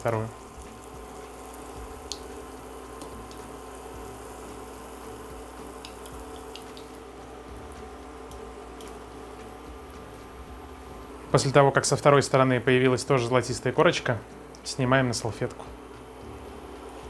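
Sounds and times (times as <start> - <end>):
pancakes sizzling in oil: 0.0 - 11.2
oil spatter crackles: 0.0 - 11.4.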